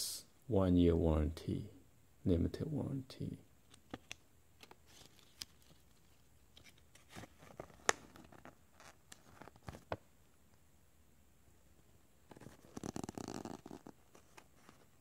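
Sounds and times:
paper crinkling and rustling: 4.6 - 10.0.

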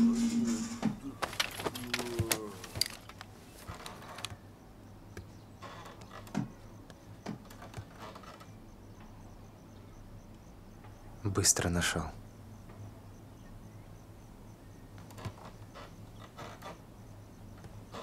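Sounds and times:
crickets chirping: 0.0 - 18.0
scattered clicks and knocks: 0.8 - 4.4.

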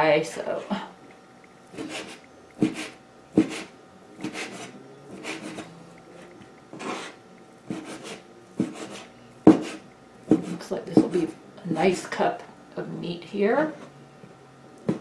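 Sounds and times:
knife scraping: 1.7 - 11.3
knife chopping on wood: 1.8 - 5.6, 7.7 - 11.3.

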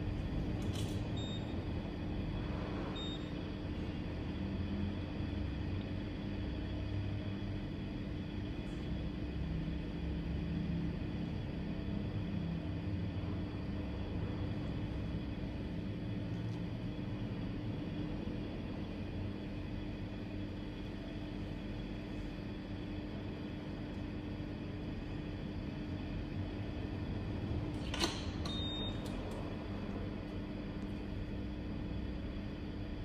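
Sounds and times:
steady mechanical hum: 0.0 - 33.0.

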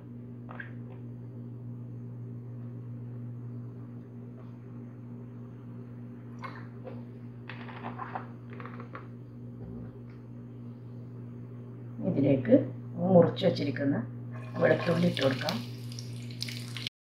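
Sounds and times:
steady low hum: 0.0 - 16.9
oil crackling in frying pan: 14.4 - 16.9.

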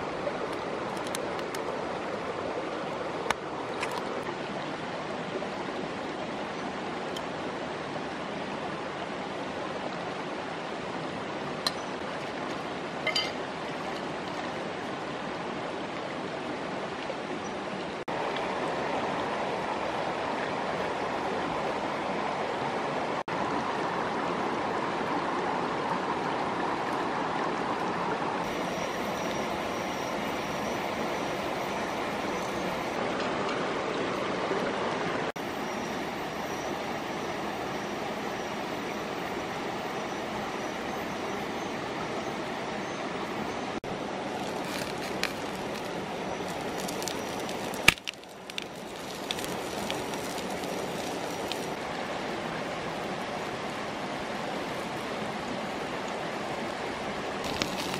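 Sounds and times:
stream running over stones: 0.0 - 57.9.

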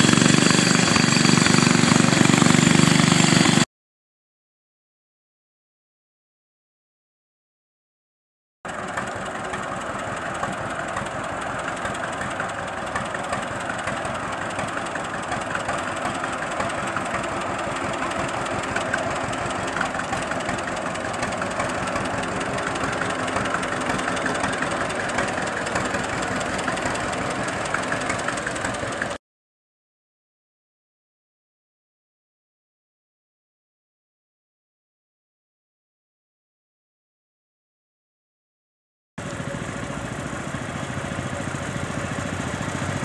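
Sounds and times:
tractor engine driving past: 0.0 - 3.6, 8.7 - 29.2, 39.2 - 43.0.

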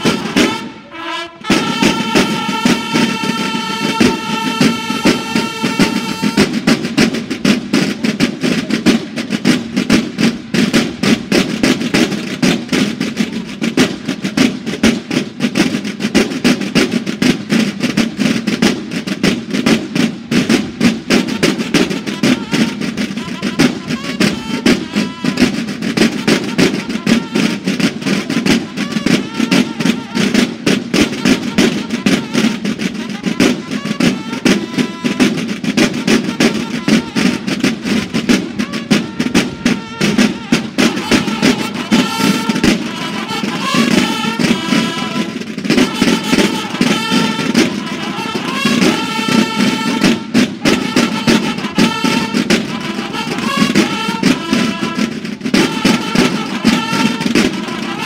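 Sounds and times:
bugles holding a chord: 0.0 - 7.0, 21.1 - 58.0
fast snare drumming: 0.0 - 58.0.

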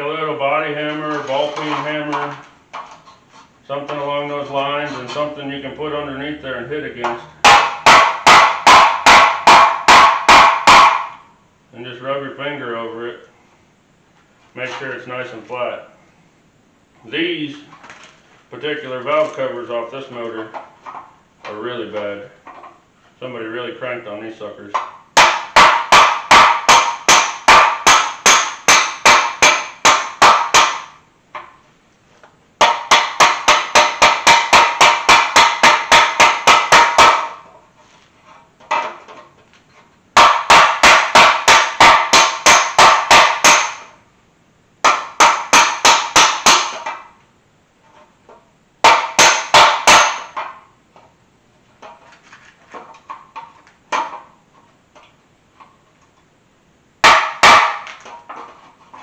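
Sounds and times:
hammer striking metal: 7.0 - 11.2, 24.8 - 31.0, 32.6 - 37.4, 40.2 - 44.0, 44.8 - 47.1, 48.8 - 50.6, 57.0 - 58.0.

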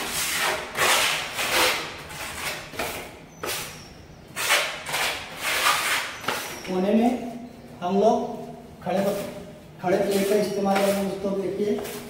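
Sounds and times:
putty knife scraping wall: 0.0 - 3.8, 4.4 - 6.8.

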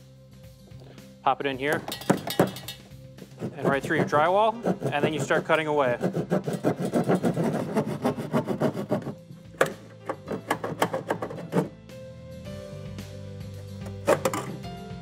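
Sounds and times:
background music: 0.0 - 15.0
saw rasping through drywall: 3.2 - 9.2, 10.1 - 11.7.

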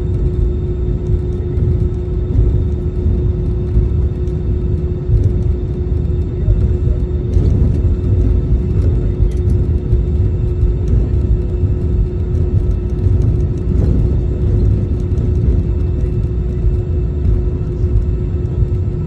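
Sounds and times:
airliner cabin rumble taxiing: 0.0 - 19.0
constant mid-pitched hum: 0.0 - 19.0.

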